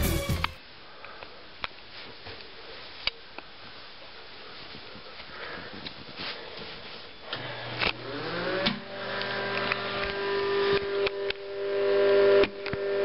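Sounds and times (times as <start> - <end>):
exhaust fan motor hum: 7.3 - 13.0.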